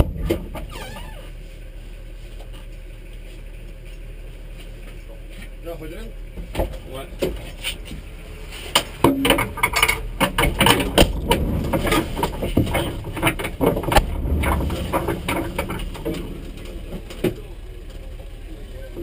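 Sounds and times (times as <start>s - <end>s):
rustling: 9.6s - 18.0s.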